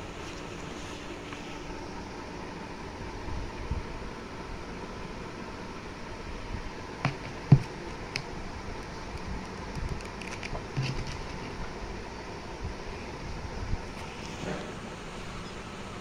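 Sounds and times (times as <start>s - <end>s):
book knocks and paper rustles: 7.0s - 7.8s, 10.4s - 11.4s
book thump: 7.1s - 7.7s.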